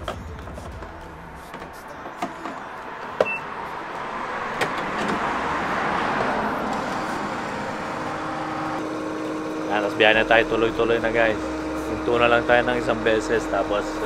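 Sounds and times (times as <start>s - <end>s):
car passing: 0.3s - 14.0s
short electronic beep: 3.2s - 3.5s.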